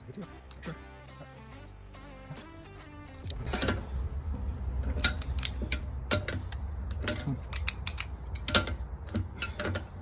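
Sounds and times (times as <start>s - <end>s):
low rumble: 3.0s - 7.0s
pliers clicking and scraping metal: 4.8s - 10.0s.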